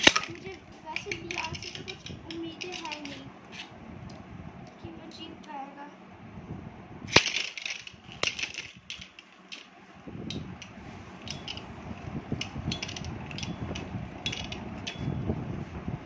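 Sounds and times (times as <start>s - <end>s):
spinning tops clicking together: 0.0s - 3.7s, 7.1s - 9.7s, 10.3s - 11.7s, 12.4s - 15.0s
spinning tops whirring and rattling: 0.0s - 3.8s, 7.1s - 15.2s.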